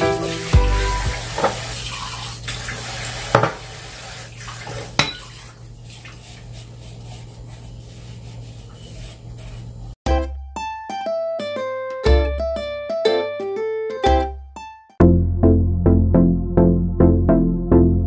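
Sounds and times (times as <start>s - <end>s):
plucked ukulele music: 0.0s - 1.2s, 10.1s - 15.3s
tap water running: 0.0s - 7.6s
glass clinking: 5.0s - 5.3s
dish clatter: 5.0s - 5.4s.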